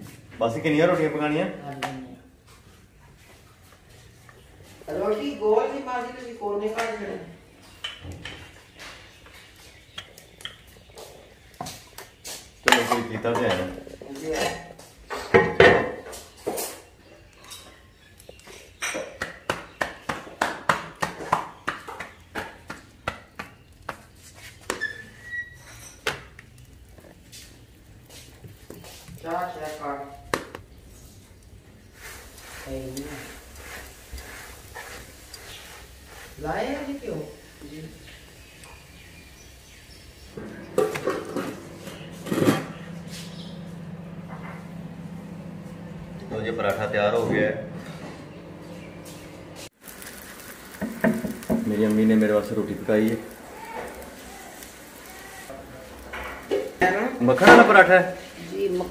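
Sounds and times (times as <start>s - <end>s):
dough slapped between palms: 19.1s - 24.8s
steady low hum: 40.3s - 49.7s.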